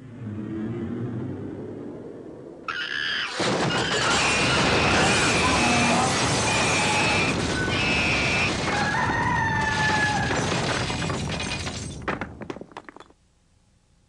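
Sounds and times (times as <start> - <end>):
loud crash-like noise: 3.3 - 11.2.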